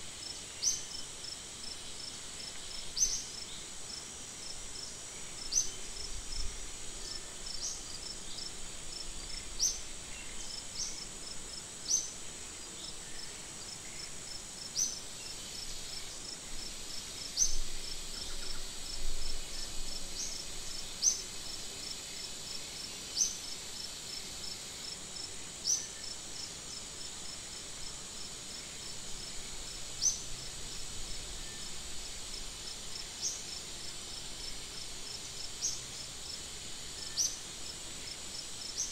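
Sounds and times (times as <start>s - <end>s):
high-pitched insect buzz: 14.7s - 27.9s.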